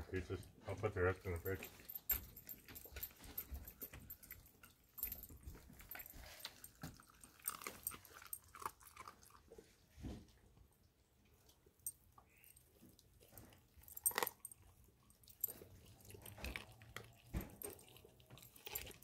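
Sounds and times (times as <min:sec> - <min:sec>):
dog crunching bone: 0:01.2 - 0:09.7, 0:12.6 - 0:19.0.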